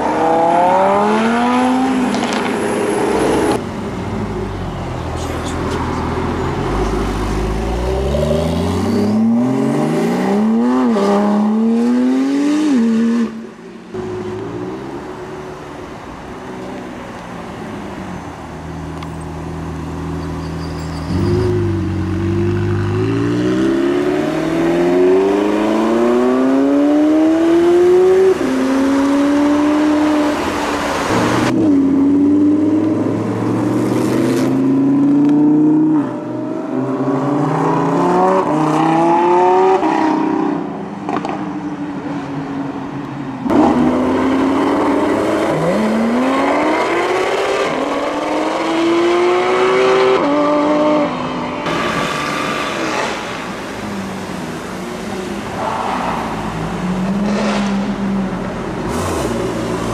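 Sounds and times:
car engines accelerating hard: 21.1 - 41.4, 43.4 - 59.9.

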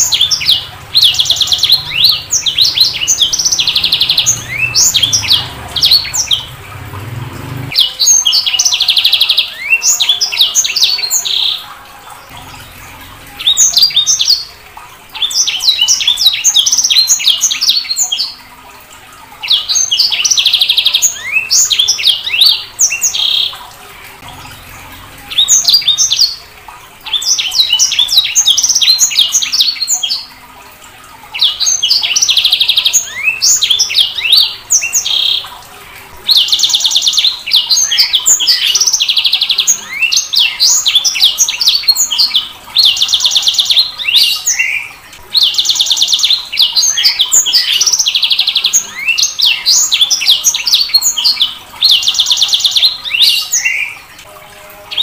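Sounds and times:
finch singing high twittering: 0.0 - 11.6, 12.3 - 14.5.

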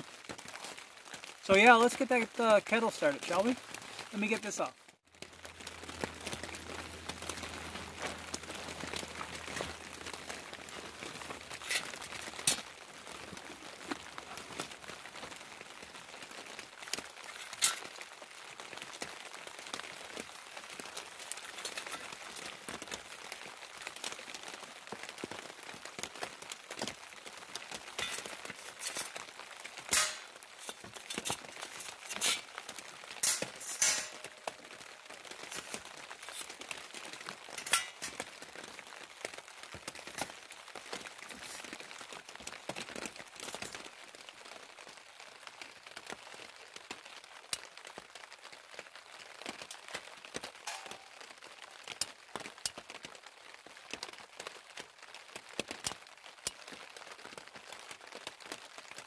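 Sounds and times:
rain on a plastic tarp: 0.0 - 59.0
metal camp stove clinking: 17.3 - 17.9, 28.0 - 29.1, 29.9 - 32.5, 33.2 - 34.3, 37.6 - 38.3, 50.7 - 51.2.

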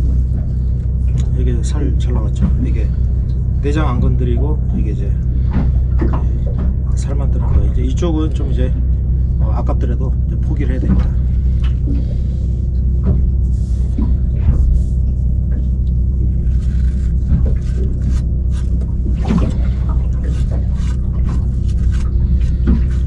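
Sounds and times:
boat engine humming: 0.0 - 23.0
handling clicks and scrapes: 16.2 - 23.0.

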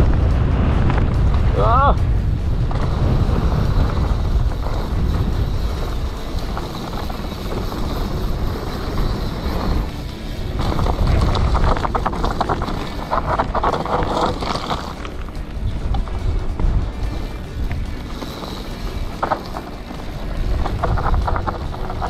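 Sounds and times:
bike rattling and clattering: 0.0 - 22.0
bike tyres rolling on dirt: 0.0 - 22.0
wind on microphone: 0.0 - 22.0.

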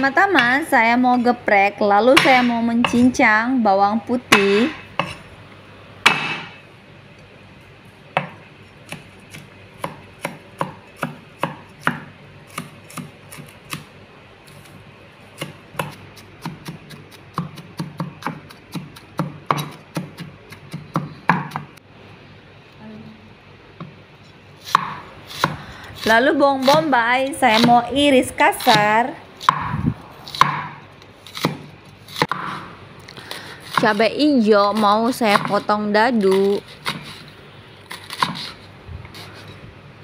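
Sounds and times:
cleaver chopping on wooden board: 6.0 - 6.6, 24.7 - 25.6, 29.5 - 30.8, 31.4 - 32.6.

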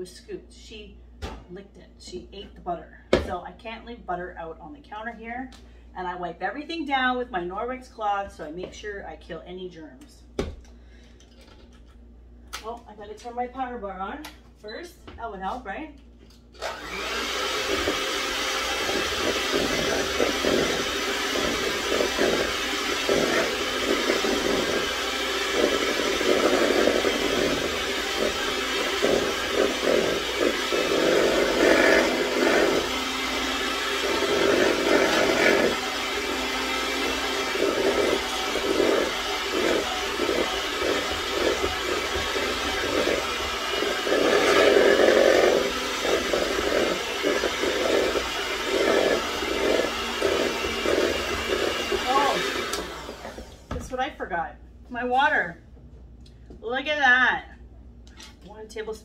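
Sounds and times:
electric mixer running: 16.6 - 53.7.

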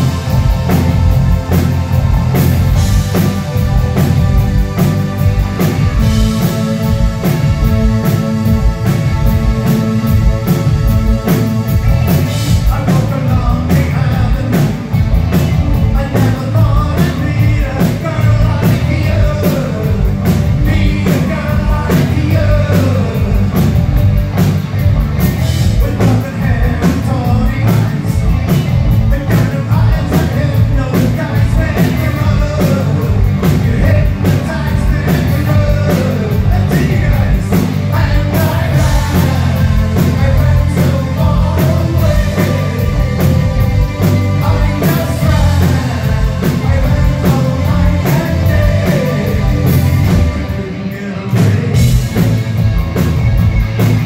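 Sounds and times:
lead singer singing: 0.0 - 23.9, 25.5 - 52.4
live rock band playing: 0.0 - 54.0.

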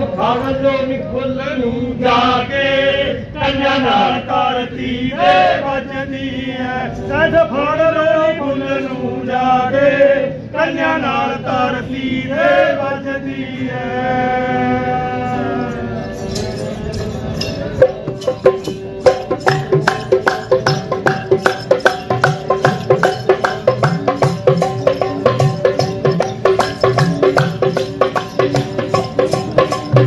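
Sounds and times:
man chanting folk recitation: 0.0 - 30.0
drum strikes: 16.3 - 30.0.

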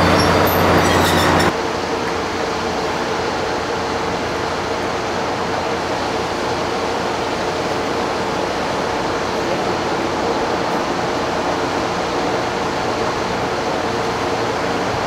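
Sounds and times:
diesel locomotive idling: 0.0 - 15.0.

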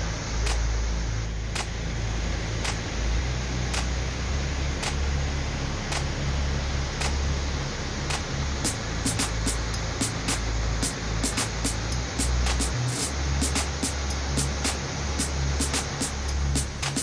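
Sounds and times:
waterfall roaring: 0.0 - 17.0
sharp click: 0.4 - 0.6, 1.6 - 1.8, 4.8 - 5.0.

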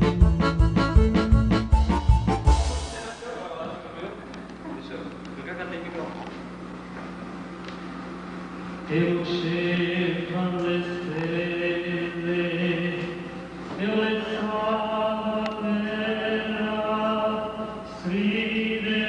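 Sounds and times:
man singing into microphone: 8.9 - 19.0.

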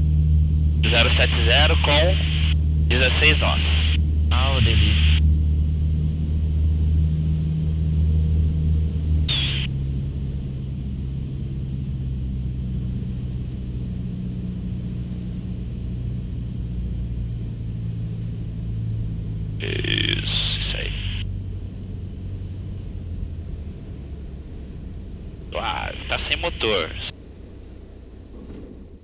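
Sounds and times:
plane engine and propeller droning: 0.0 - 29.0.

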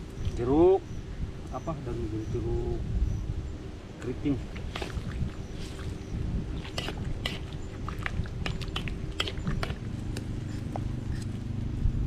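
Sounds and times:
low rumble: 5.0 - 12.0.

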